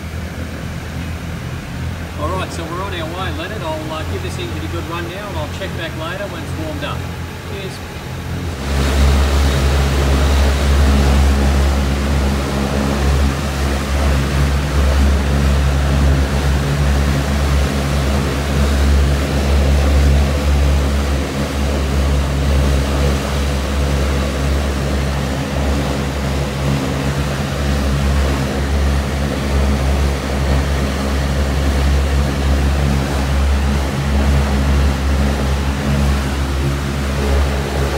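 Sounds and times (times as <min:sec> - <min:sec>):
radial engine running: 0:00.0 - 0:37.9.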